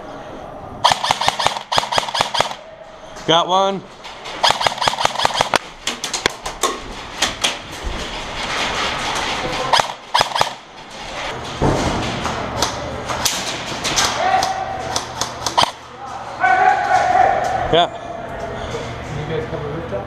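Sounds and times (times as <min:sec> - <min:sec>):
airsoft guns firing: 0:00.8 - 0:02.7, 0:04.4 - 0:06.4, 0:09.7 - 0:10.7, 0:15.2 - 0:15.8.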